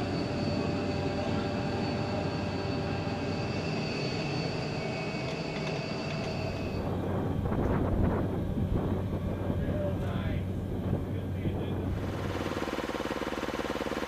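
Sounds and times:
gas turbine whining and rumbling: 0.0s - 14.0s.

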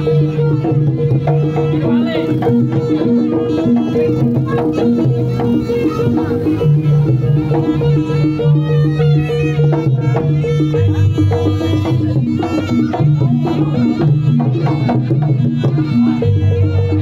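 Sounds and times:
drum strokes: 0.0s - 17.0s
wavering melody line: 0.0s - 17.0s.

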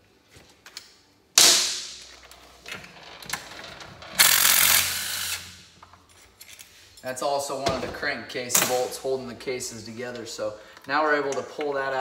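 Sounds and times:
impact wrench bursts: 4.2s - 5.6s.

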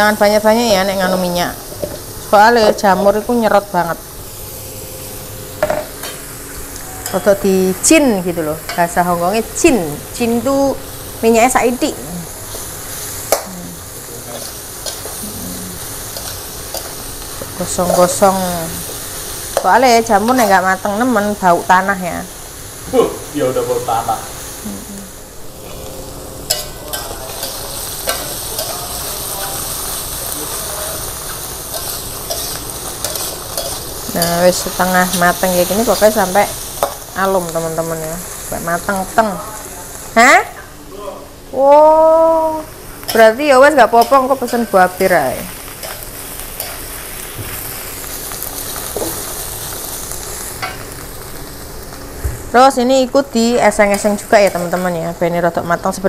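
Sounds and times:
mushrooms sizzling in a wok: 0.0s - 56.0s
metal spatula scraping: 26.5s - 34.8s.

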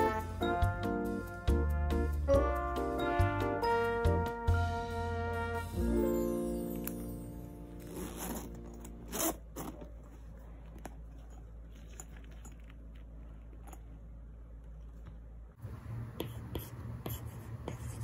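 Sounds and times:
zipper being pulled: 7.8s - 12.7s.

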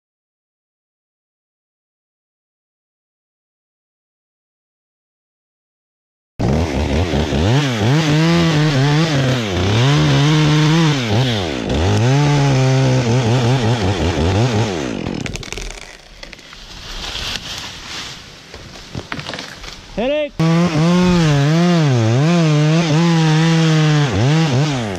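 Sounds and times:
chainsaw revving: 6.4s - 16.5s, 20.3s - 24.9s.

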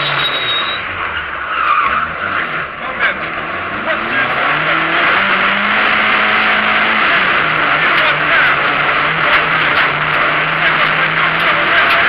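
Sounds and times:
rally car engine at high revs: 0.0s - 12.0s
road and tyre noise: 0.0s - 12.0s.

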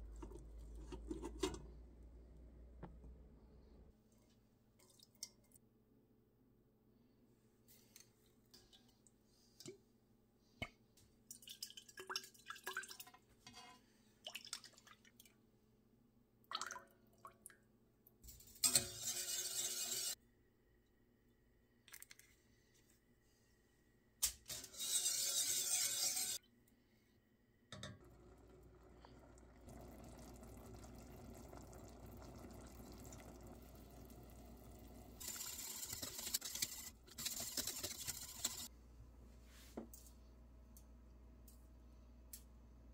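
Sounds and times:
drips and small clinks: 4.8s - 5.6s, 11.2s - 13.3s.

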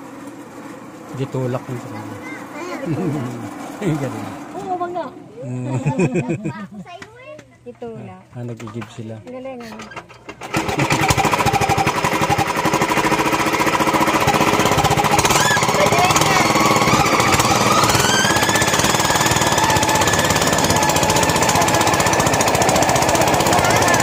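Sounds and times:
rail trolley engine chugging: 10.4s - 24.0s.

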